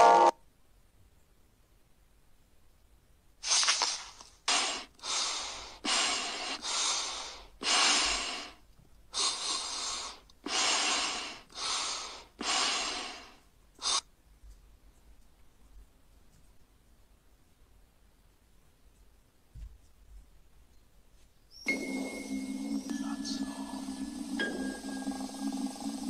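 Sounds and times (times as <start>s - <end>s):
heavy breathing: 4.5s - 14.1s.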